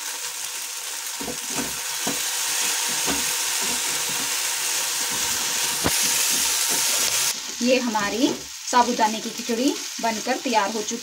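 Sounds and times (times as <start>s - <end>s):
food sizzling in a pan: 0.0s - 11.0s
wooden spatula scraping a pan: 1.5s - 4.4s, 5.0s - 8.5s.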